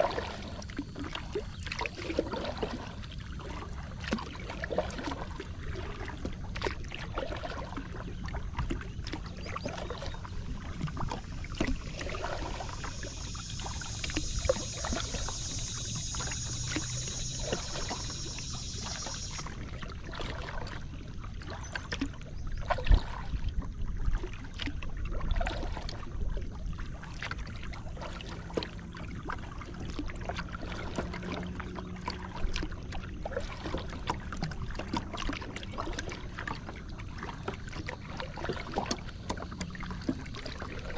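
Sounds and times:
water lapping against hull: 0:00.0 - 0:40.9
high steady buzz: 0:12.2 - 0:19.5.

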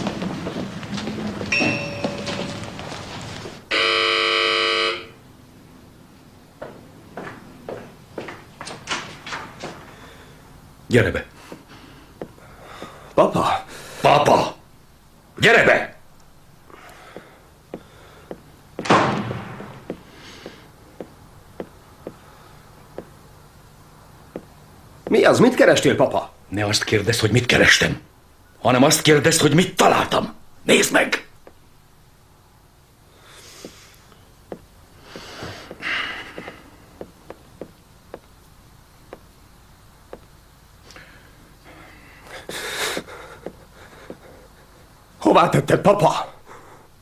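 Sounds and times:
footsteps tapping: 0:00.0 - 0:03.6, 0:06.6 - 0:10.0, 0:11.4 - 0:13.1, 0:16.7 - 0:23.2, 0:24.3 - 0:25.3, 0:33.6 - 0:39.4, 0:40.1 - 0:40.4, 0:42.3 - 0:44.7
door slamming shut: 0:18.8 - 0:19.8.

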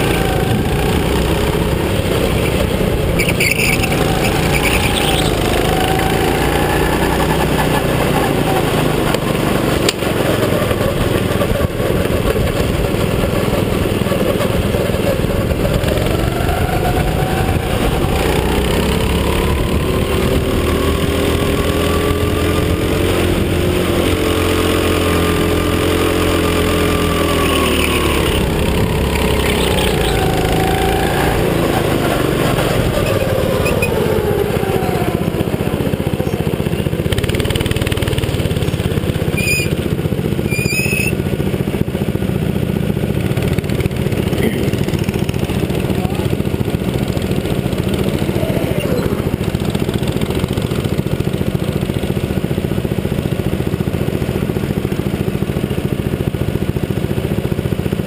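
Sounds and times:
go-kart engine revving: 0:00.0 - 0:58.0
high squeaks: 0:03.2 - 0:05.6, 0:27.3 - 0:30.6, 0:39.3 - 0:39.8, 0:40.4 - 0:41.2.

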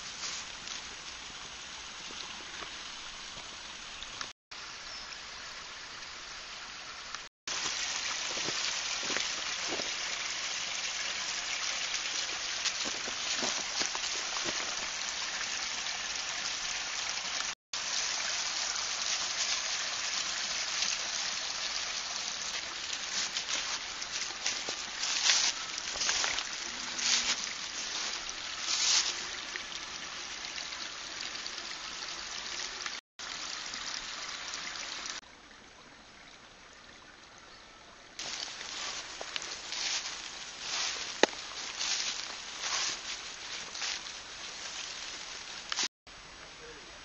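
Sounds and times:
leaves crunching underfoot: 0:00.0 - 0:00.9, 0:07.5 - 0:10.0, 0:12.6 - 0:14.8, 0:22.6 - 0:29.2, 0:38.2 - 0:45.9.

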